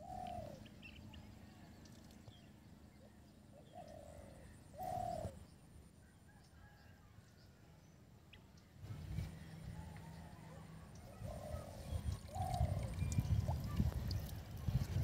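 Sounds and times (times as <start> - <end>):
bird calling: 0.0 - 1.0, 3.5 - 5.4, 11.0 - 13.9.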